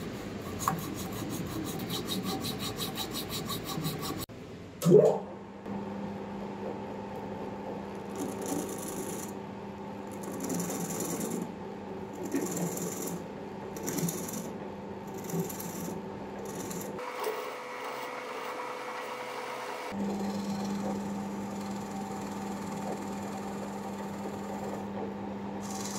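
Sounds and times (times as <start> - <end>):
chisel scraping spinning wood: 0.0 - 4.3, 8.0 - 9.4, 10.0 - 24.9, 25.6 - 25.9
wood lathe motor hum: 8.0 - 9.4, 10.0 - 14.6, 15.2 - 25.9.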